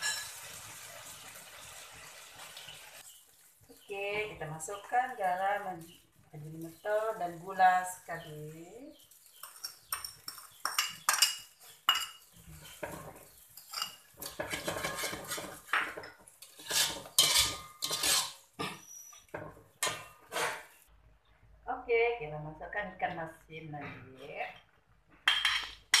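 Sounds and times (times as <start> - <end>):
metal spatula scraping a wok: 0.0 - 0.4, 9.1 - 18.8, 19.8 - 20.8.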